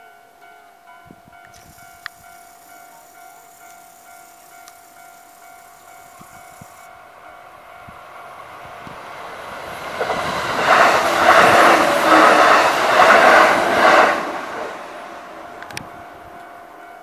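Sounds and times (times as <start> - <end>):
level crossing bell ringing: 0.0 - 7.8
train wheels rumbling on rails: 1.3 - 17.0.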